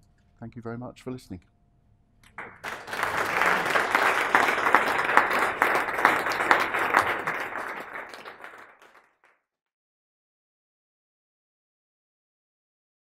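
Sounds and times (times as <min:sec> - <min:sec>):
audience applauding: 0:02.3 - 0:09.4.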